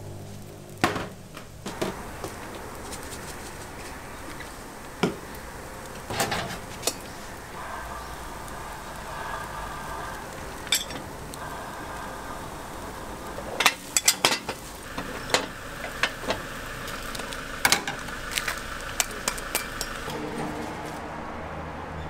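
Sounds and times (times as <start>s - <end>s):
sizzle from hot irons: 0.0s - 21.0s
metal skewer clanking on iron molds: 10.6s - 11.0s, 13.6s - 16.2s.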